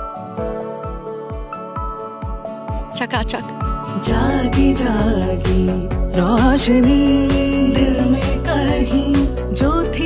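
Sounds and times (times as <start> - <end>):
low kick drum beat: 4.1 - 10.0.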